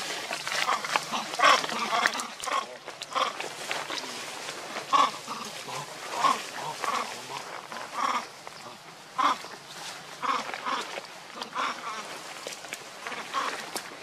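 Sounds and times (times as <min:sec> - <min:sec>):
young monkeys squealing: 0:00.0 - 0:03.4, 0:04.8 - 0:08.4.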